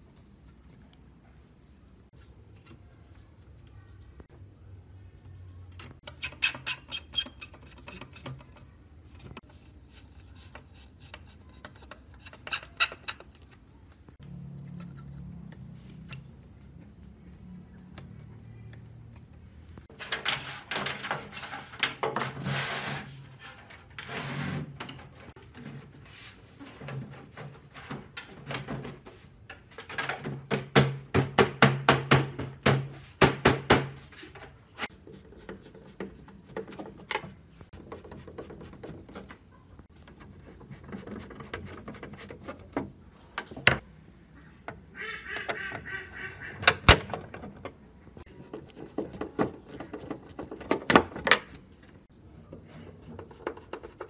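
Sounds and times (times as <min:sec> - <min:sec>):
squeaky rubbing: 0:06.1 - 0:08.7, 0:34.8 - 0:36.5, 0:37.9 - 0:43.1.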